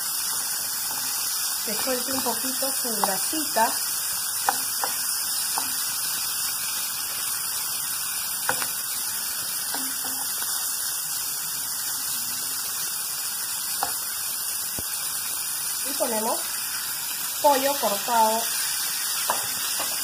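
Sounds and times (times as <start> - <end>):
bacon sizzling in frying pan: 0.0 - 20.0
spatula tapping pan: 0.8 - 3.6, 4.4 - 6.0, 8.4 - 8.8, 9.6 - 10.4, 19.3 - 20.0.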